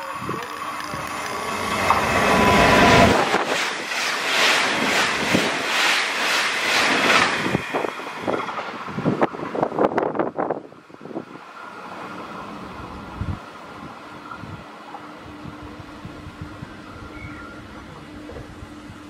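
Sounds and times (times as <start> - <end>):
train passing at high speed: 0.0 - 18.4
train wheels clattering: 0.5 - 9.8.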